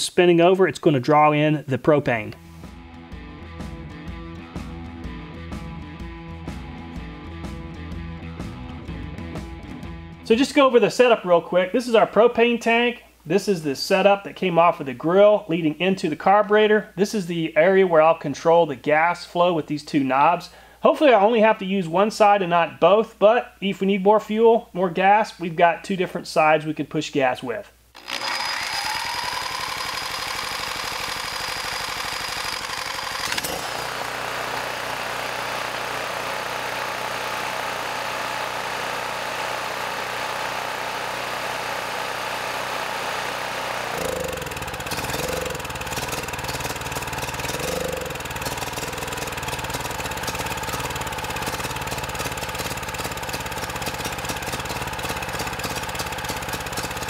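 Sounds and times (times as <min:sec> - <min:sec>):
generator engine running: 0:28.0 - 0:57.0.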